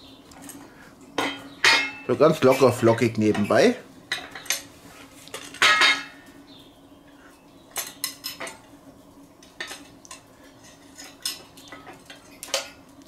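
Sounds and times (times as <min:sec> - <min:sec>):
metal clatter on steel plate: 0:01.2 - 0:04.7, 0:05.3 - 0:06.2
metal clinks and knocks: 0:05.4 - 0:06.2.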